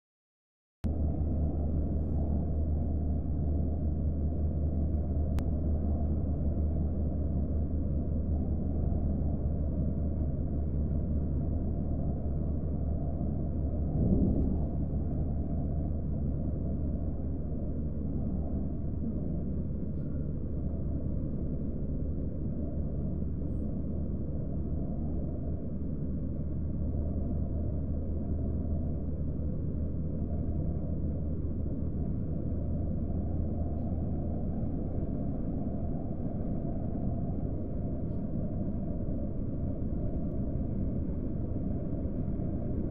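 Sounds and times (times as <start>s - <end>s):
car road rumble from inside: 13.8s - 15.5s.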